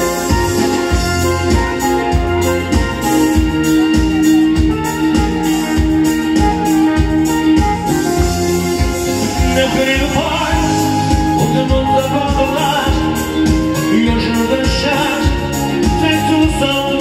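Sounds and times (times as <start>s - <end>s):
live band music: 0.0s - 17.0s
person singing: 9.4s - 17.0s.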